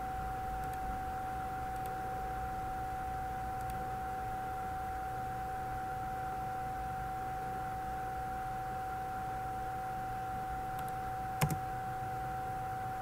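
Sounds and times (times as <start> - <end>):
steady electrical hum: 0.0 - 13.0
computer mouse clicking: 0.6 - 0.8, 1.7 - 2.0, 3.6 - 3.8, 10.8 - 11.6.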